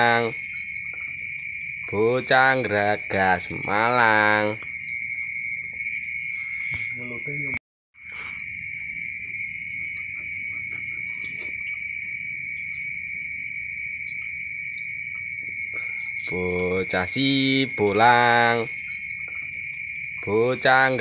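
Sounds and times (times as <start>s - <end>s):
crickets trilling: 0.0s - 21.0s.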